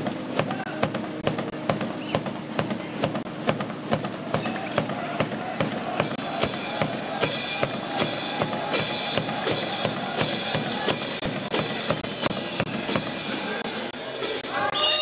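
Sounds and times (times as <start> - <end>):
music with steady drum beat: 0.0 - 14.8.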